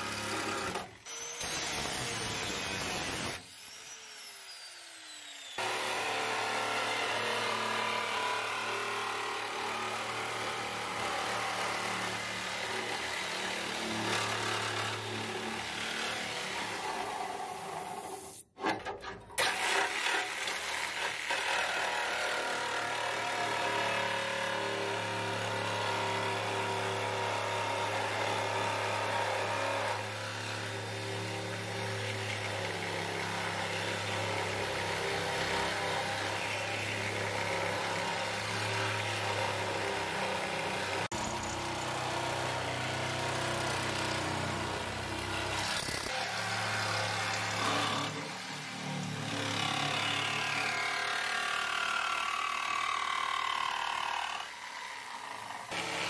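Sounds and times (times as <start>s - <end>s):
reciprocating saw cutting steel: 0.0s - 56.0s.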